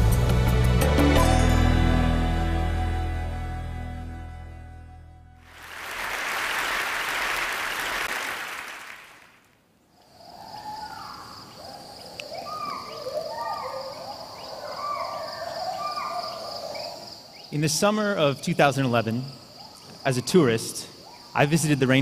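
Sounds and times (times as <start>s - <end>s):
audience applause: 5.4s - 9.4s
gibbons whooping: 12.3s - 17.0s.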